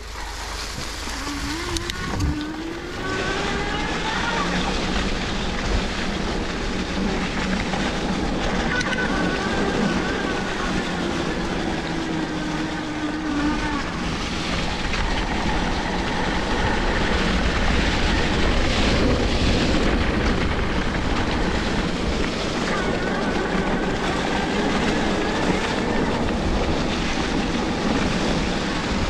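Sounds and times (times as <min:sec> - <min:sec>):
bike tyres rolling on dirt: 0:00.0 - 0:29.0
wind rumbling on microphone: 0:00.0 - 0:29.0.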